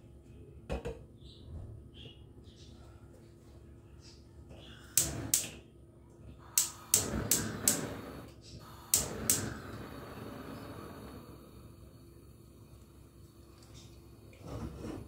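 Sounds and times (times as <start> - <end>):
gas burner hissing softly: 4.0 - 15.0
gas igniter clicking: 6.5 - 9.8.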